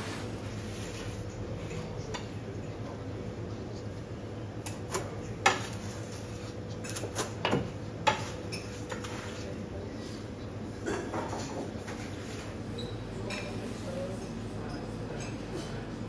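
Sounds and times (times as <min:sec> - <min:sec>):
utensils and dishes clinking: 0:06.7 - 0:09.5, 0:10.8 - 0:16.0.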